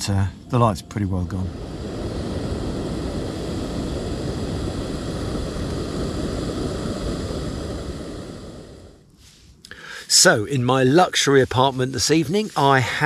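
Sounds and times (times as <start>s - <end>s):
camping stove roaring: 1.1s - 9.1s.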